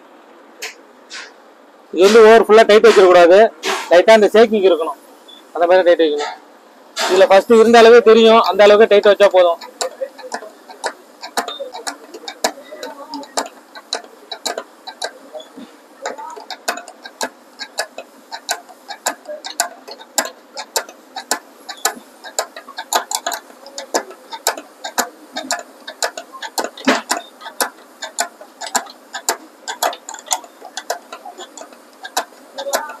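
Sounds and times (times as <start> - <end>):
spanner clicking on nuts: 7.0 - 33.0.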